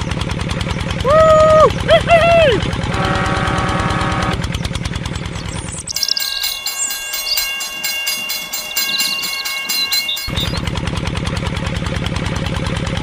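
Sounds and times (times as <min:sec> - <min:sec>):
fast repetitive pulsing: 0:05.0 - 0:10.8
toy train sound effect: 0:05.5 - 0:10.7.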